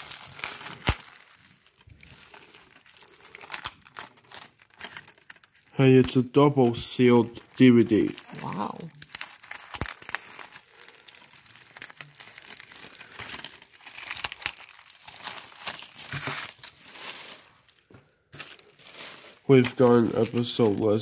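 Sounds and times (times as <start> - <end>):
plastic wrap crinkling: 0.0 - 21.0.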